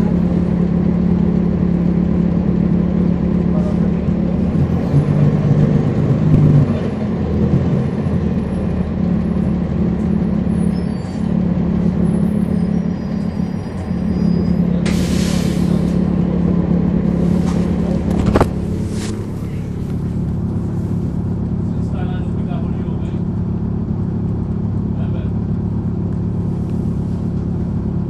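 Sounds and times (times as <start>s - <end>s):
bus diesel engine running: 0.0s - 28.0s
air brakes hissing: 12.4s - 16.1s.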